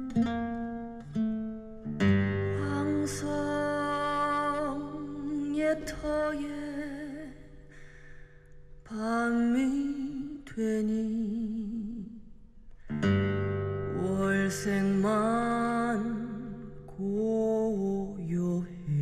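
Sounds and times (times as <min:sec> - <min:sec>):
guitar accompaniment: 0:00.0 - 0:09.0, 0:12.7 - 0:19.0
woman singing jazz song: 0:02.6 - 0:07.4, 0:08.9 - 0:12.1.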